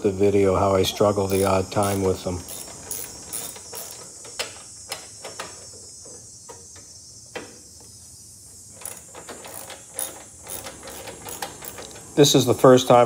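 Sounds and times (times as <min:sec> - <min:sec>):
socket wrench clicking: 0:01.3 - 0:05.5, 0:08.8 - 0:12.2.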